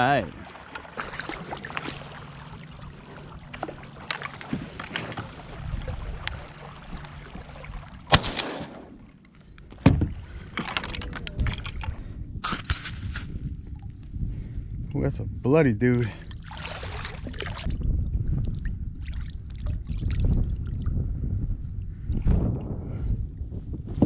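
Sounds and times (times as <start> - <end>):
hollow knocks in boat: 9.8 - 10.2.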